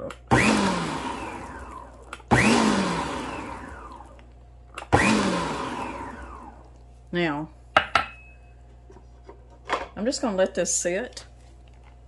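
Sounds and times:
stand mixer motor bursts: 0:00.3 - 0:04.1, 0:04.9 - 0:06.6.

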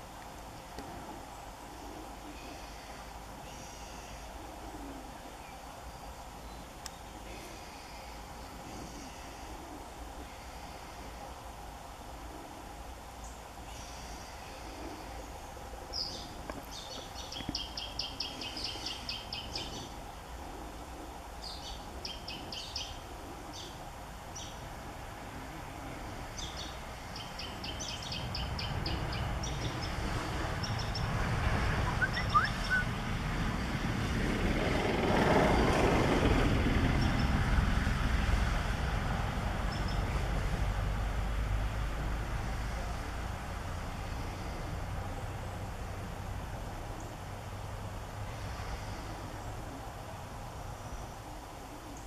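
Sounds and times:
vehicle engine rumble: 0:04.4 - 0:52.0
bird singing high trills: 0:31.8 - 0:32.9.

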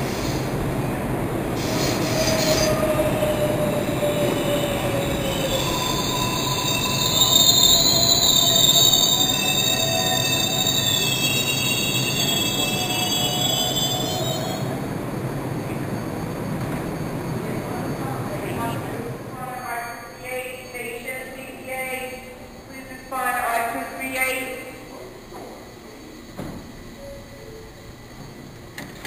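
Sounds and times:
subway train rumble: 0:00.0 - 0:29.0
high metallic brake squeal: 0:01.6 - 0:14.7.

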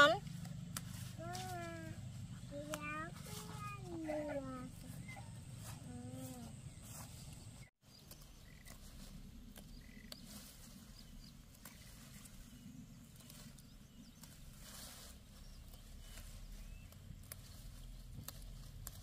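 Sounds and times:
leaves rustling: 0:00.0 - 0:19.0
low steady rumble: 0:08.7 - 0:19.0.

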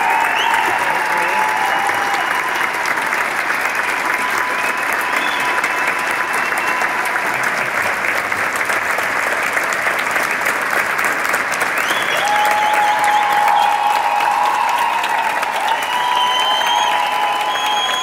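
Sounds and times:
long held cheers: 0:00.0 - 0:08.2, 0:11.8 - 0:18.0
audience clapping: 0:00.0 - 0:18.0.

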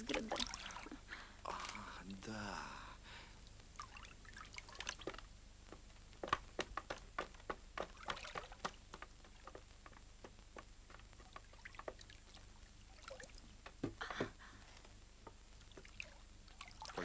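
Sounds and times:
water lapping around boat: 0:00.0 - 0:01.8.

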